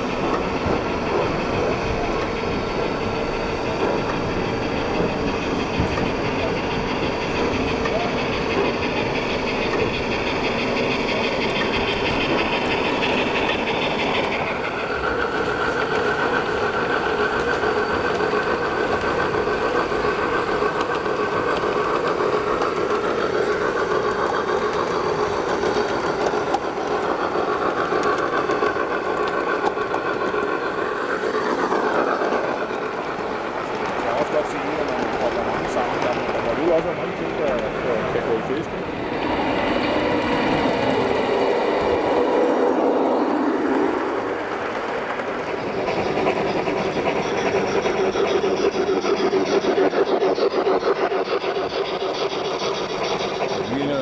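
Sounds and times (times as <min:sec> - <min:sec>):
model train steady hum: 0:00.0 - 0:54.0
model train wheel clicks: 0:05.8 - 0:36.8.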